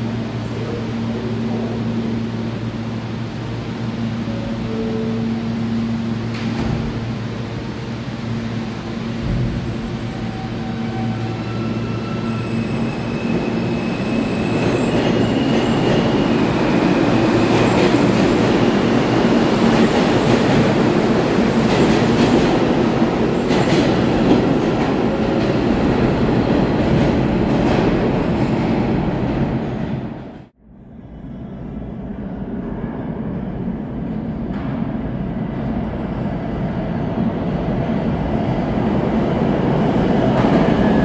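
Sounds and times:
train cars rumbling: 0:00.0 - 0:30.5
subway train motors whining: 0:00.0 - 0:41.0.

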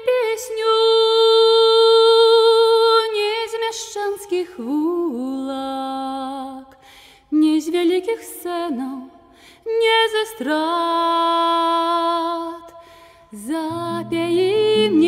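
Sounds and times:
woman singing: 0:00.0 - 0:15.0
breath: 0:06.7 - 0:07.3, 0:09.2 - 0:09.7, 0:12.7 - 0:13.4.

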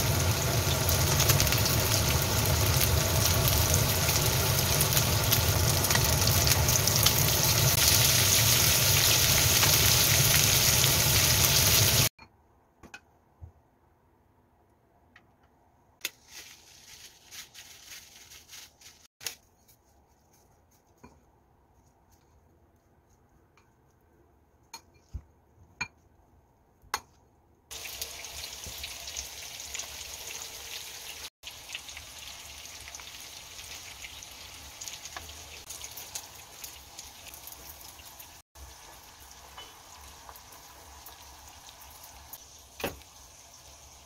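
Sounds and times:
frying sizzle with crackles: 0:00.0 - 0:12.2, 0:16.0 - 0:19.4, 0:27.7 - 0:44.0.

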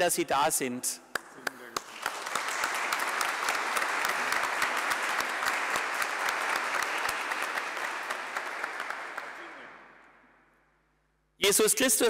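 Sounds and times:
congregation applauding: 0:01.1 - 0:10.2.

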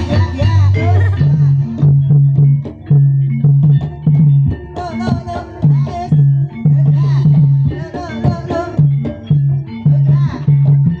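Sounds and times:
person singing: 0:00.0 - 0:01.9, 0:04.8 - 0:09.2, 0:09.8 - 0:11.0
gamelan ensemble: 0:00.0 - 0:11.0.

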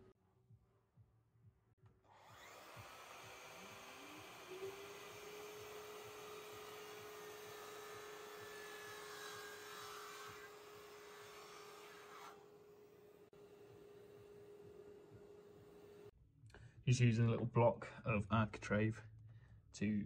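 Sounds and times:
dust extractor humming: 0:02.2 - 0:16.1.

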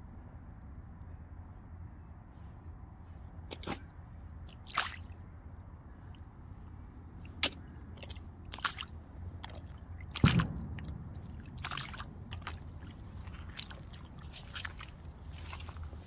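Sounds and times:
rubber boots wading through water: 0:03.2 - 0:16.0.

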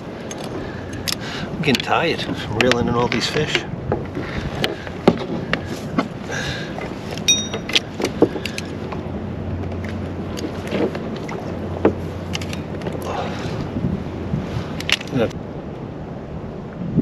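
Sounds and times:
wind rumble on microphone: 0:00.0 - 0:17.0
fishing gear clicking and knocking: 0:00.2 - 0:13.1, 0:14.8 - 0:15.4.

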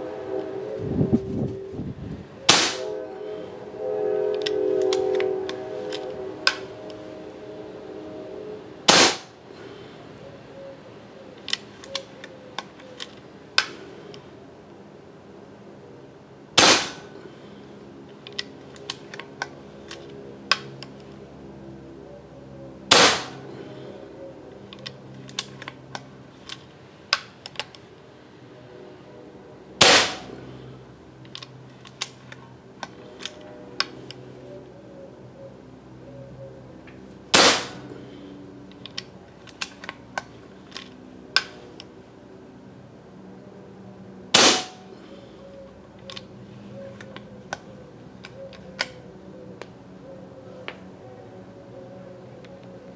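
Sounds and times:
air rifle shots cracking: 0:02.5 - 0:02.9, 0:08.9 - 0:09.3, 0:16.6 - 0:17.1, 0:22.9 - 0:23.4, 0:29.8 - 0:30.3, 0:37.3 - 0:37.8, 0:44.3 - 0:44.8.

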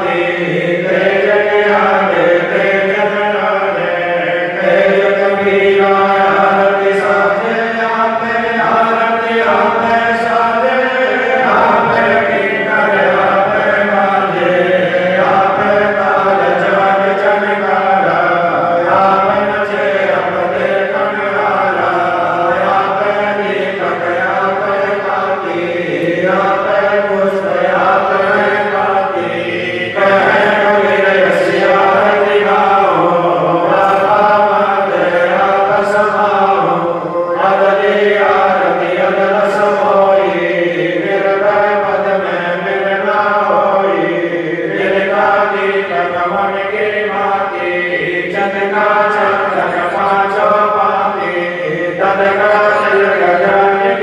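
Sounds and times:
voices chanting melodically: 0:00.0 - 0:54.0.

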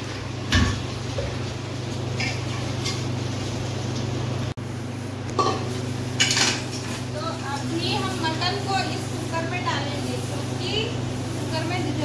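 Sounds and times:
metal cookware clinking: 0:05.4 - 0:06.8.

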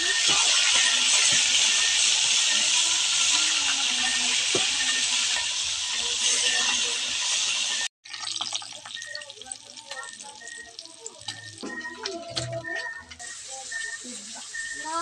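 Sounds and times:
fish sizzling in hot oil: 0:00.0 - 0:11.6, 0:13.2 - 0:15.0.

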